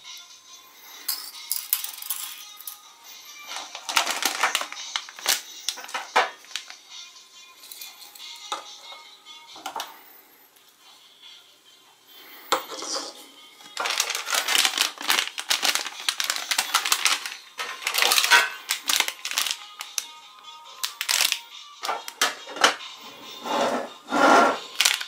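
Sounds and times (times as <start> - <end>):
faint music: 0.0 - 25.0
plastic toys clattering in tin box: 1.0 - 2.8, 3.5 - 6.6, 13.8 - 20.0, 20.8 - 22.8, 24.6 - 25.0
foil snack bag crinkling: 3.4 - 6.8, 13.6 - 20.2, 20.8 - 22.2, 24.6 - 25.0.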